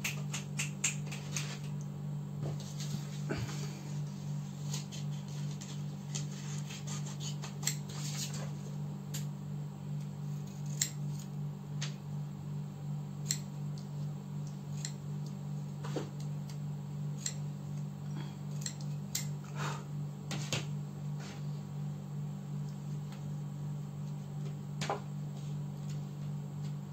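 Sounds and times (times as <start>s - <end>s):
steady low hum: 0.0s - 26.9s
scissors snipping paper: 4.7s - 8.4s, 10.4s - 11.3s.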